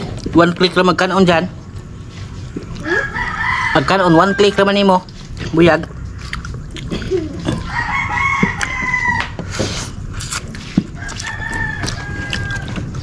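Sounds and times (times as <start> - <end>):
rooster crowing: 2.8 - 4.9, 7.6 - 9.5, 10.9 - 13.0.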